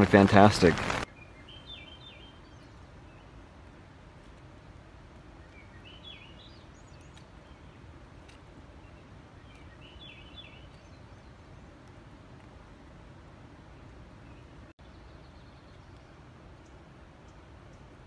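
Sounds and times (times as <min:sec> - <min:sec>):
songbird warbling: 0:01.1 - 0:03.4, 0:05.4 - 0:07.9, 0:08.8 - 0:11.6.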